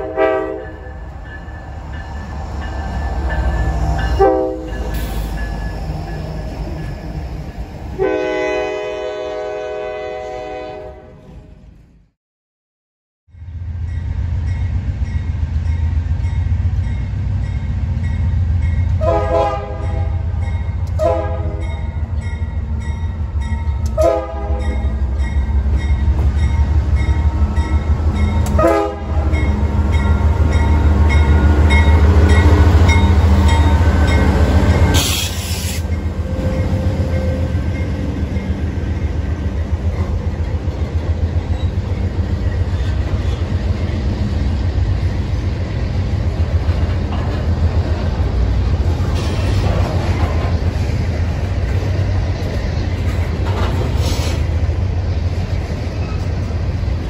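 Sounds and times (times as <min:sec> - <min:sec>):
train air horn blasts: 0:00.0 - 0:00.9, 0:04.1 - 0:05.3, 0:08.0 - 0:11.2, 0:19.0 - 0:20.3, 0:20.9 - 0:21.7, 0:23.8 - 0:24.9, 0:28.4 - 0:29.4, 0:34.8 - 0:37.7
diesel locomotive engine drone: 0:00.0 - 0:12.1, 0:13.3 - 0:57.0.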